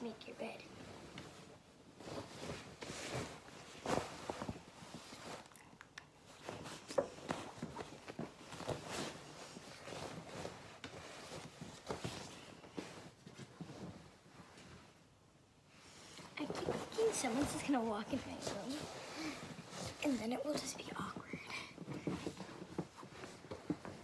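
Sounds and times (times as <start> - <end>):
bedding rustling and flapping: 0.4 - 5.5, 6.2 - 24.0.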